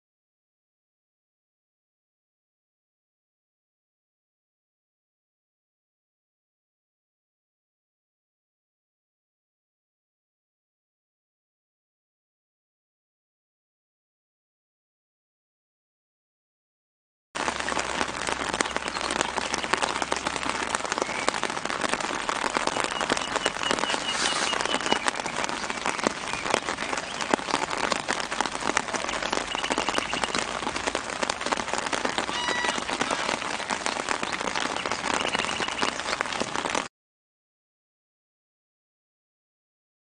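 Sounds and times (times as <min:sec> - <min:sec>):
rain falling on ground and leaves: 0:17.4 - 0:36.9.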